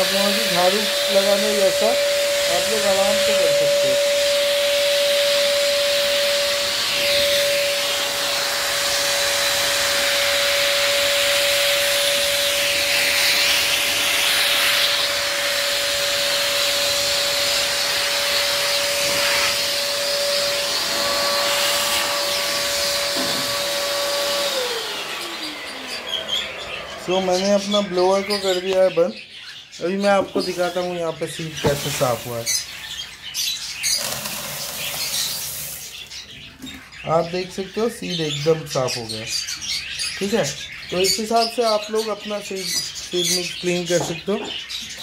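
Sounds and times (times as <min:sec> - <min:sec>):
blower motor whining: 0:00.0 - 0:29.1, 0:29.9 - 0:36.2.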